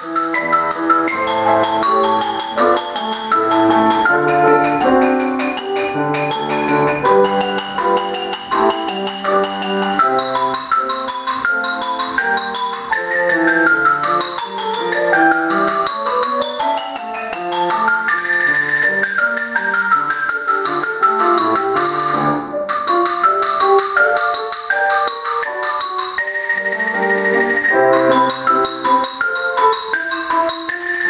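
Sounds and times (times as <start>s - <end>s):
xylophone runs: 0.0s - 31.0s.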